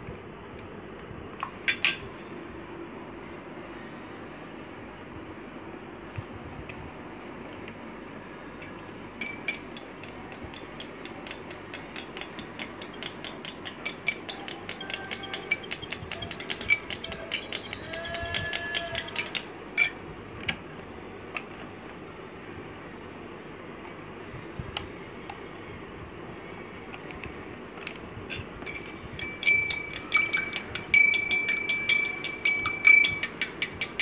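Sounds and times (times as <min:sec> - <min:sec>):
metal spoon clinking glass bowl: 0:08.6 - 0:20.0, 0:28.3 - 0:34.0.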